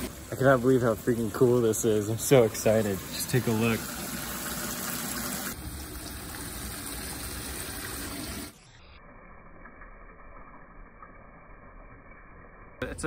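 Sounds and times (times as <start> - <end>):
dull hiss: 0.0 - 5.5
water pouring into truck bed: 0.0 - 8.6.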